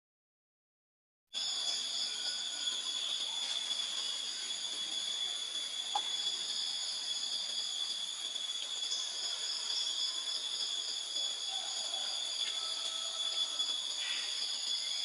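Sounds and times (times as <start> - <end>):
insect chorus: 1.3 - 15.0.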